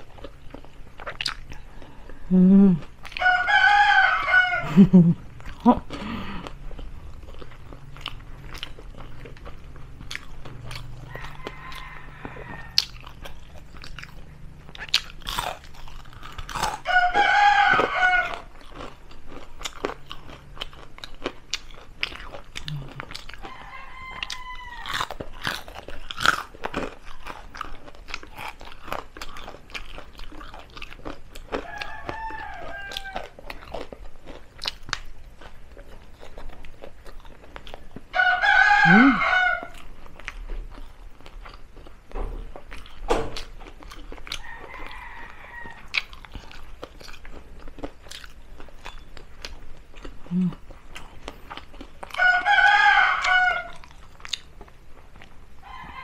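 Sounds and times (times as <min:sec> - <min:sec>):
crunching and chewing: 0:00.0 - 0:56.0
rooster crowing: 0:03.1 - 0:05.0, 0:10.7 - 0:13.1, 0:16.5 - 0:19.4, 0:23.3 - 0:25.6, 0:31.5 - 0:33.4, 0:38.1 - 0:39.8, 0:44.3 - 0:46.2, 0:52.1 - 0:53.9, 0:55.6 - 0:56.0.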